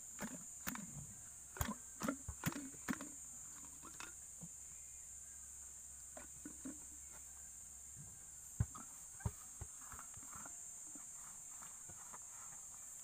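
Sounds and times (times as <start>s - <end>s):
hand primer pump clicks: 0.2s - 0.9s.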